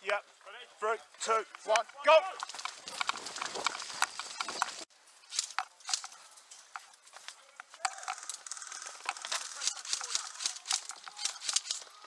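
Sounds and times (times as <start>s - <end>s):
tarpaulin and netting rustling: 0.3s - 12.0s
sharp clicks and snaps: 7.6s - 11.9s.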